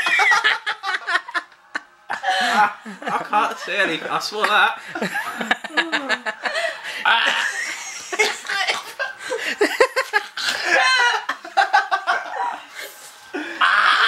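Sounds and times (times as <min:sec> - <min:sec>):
high wavering laughter: 0:00.0 - 0:03.2, 0:05.0 - 0:14.0
people laughing hard: 0:00.0 - 0:03.8, 0:04.4 - 0:14.0.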